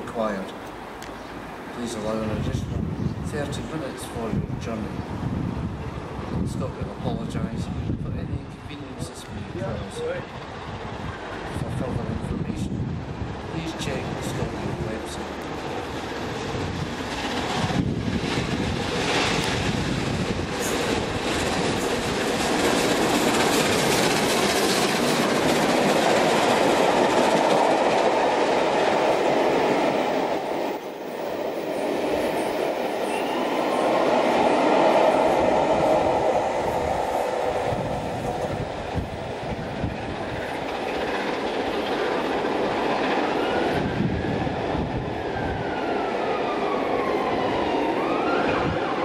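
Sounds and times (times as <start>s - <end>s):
steam train passing at speed: 12.9s - 49.0s.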